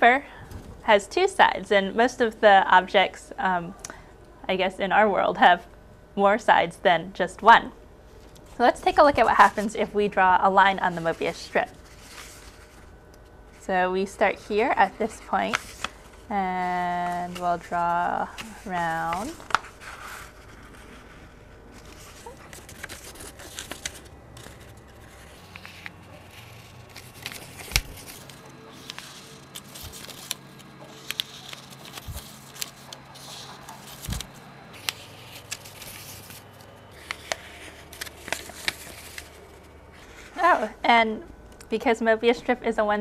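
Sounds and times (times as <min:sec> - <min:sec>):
faint low hum: 0:00.0 - 0:43.0
paper rustling: 0:10.7 - 0:12.9, 0:15.4 - 0:16.3, 0:16.9 - 0:40.6.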